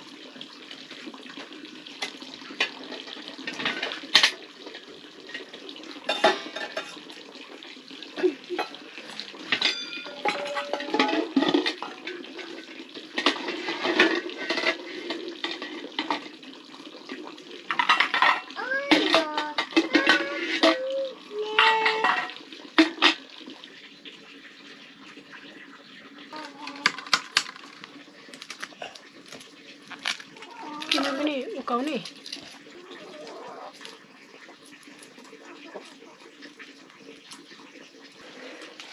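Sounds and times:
metal pots clattering: 2.0s - 7.2s, 8.1s - 16.4s, 17.1s - 23.3s, 26.4s - 27.9s
pot ringing: 9.5s - 12.6s.

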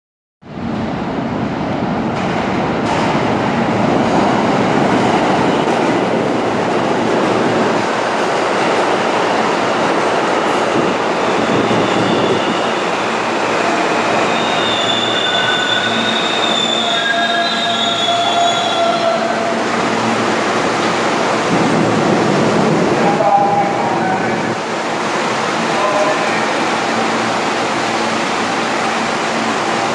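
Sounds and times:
subway train rumble: 0.4s - 29.9s
high train squealing: 11.1s - 19.6s.

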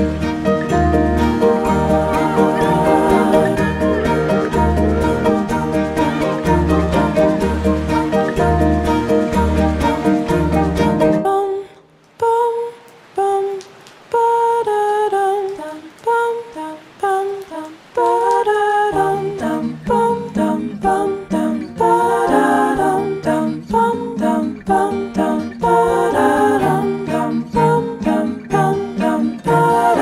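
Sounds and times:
slow background music: 0.0s - 11.4s, 18.9s - 30.0s
bass line: 0.7s - 11.1s.

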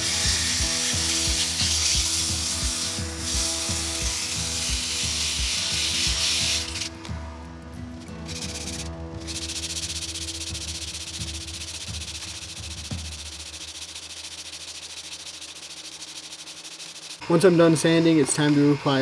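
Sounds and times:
lathe motor hum: 0.0s - 7.0s
sandpaper sanding hiss: 0.0s - 7.1s, 7.9s - 17.2s.

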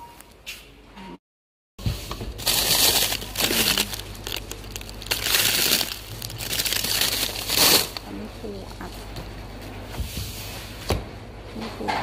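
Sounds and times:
crinkling and rustling: 1.9s - 9.1s.

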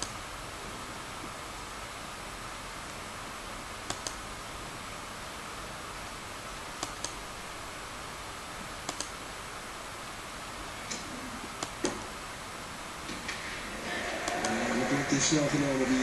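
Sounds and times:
steady background hiss: 0.0s - 16.0s
laptop clicks: 3.9s - 4.2s, 8.9s - 9.2s.

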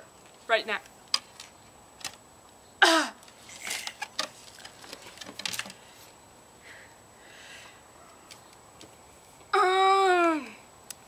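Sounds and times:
soft breaths: 5.7s - 8.0s.

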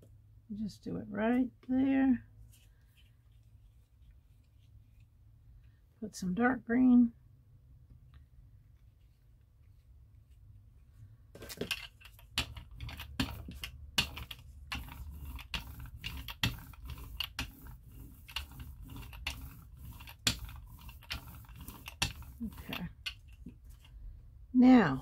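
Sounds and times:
brayer clicking and rasping: 11.6s - 24.0s.

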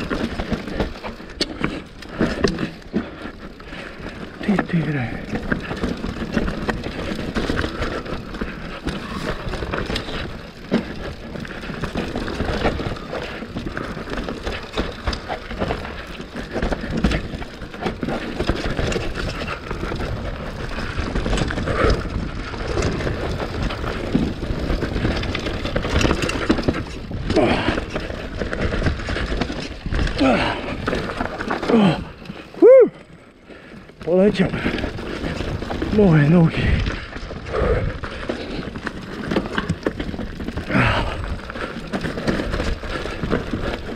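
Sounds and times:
bike rattling and knocking: 0.0s - 43.9s
tyres crunching over stones: 0.0s - 43.9s
wind rumbling on microphone: 34.4s - 43.9s.

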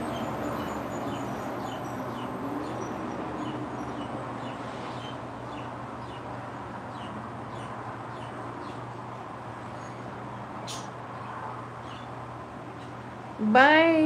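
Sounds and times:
low hum and hiss: 4.2s - 14.0s
sharp high click: 10.6s - 11.0s.

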